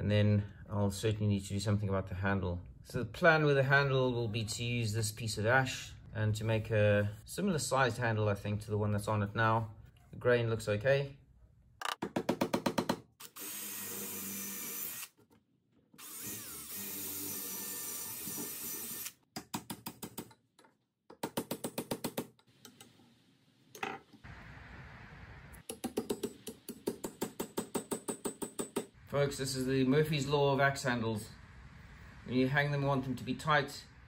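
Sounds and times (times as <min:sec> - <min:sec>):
steady noise: 0:24.3 - 0:25.6, 0:29.0 - 0:34.0.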